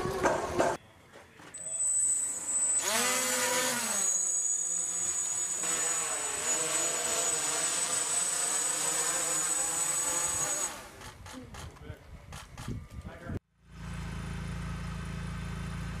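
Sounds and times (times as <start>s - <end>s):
drone propellers buzzing: 1.9s - 11.1s.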